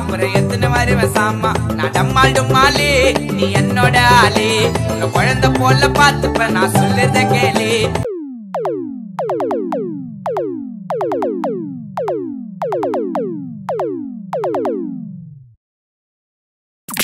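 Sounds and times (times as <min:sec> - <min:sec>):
tones dropping in pitch: 0:08.0 - 0:15.6
electronic jingle: 0:08.1 - 0:15.4.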